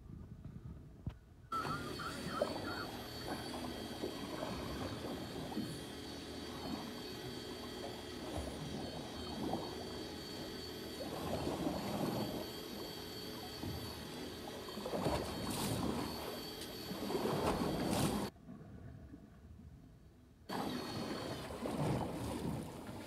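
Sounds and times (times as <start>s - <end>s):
faint high whine: 1.1s - 18.3s, 20.1s - 23.0s
water lapping against boat hull: 1.6s - 19.4s, 20.5s - 23.0s.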